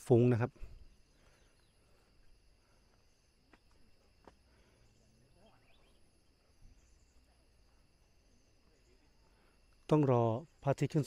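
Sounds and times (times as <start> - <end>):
high insect drone: 0.0 - 11.0
faint rising chirp: 4.8 - 9.6.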